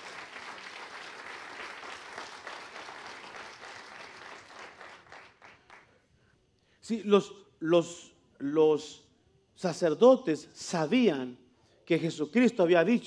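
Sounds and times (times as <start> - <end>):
crowd applauding: 0.0 - 6.0.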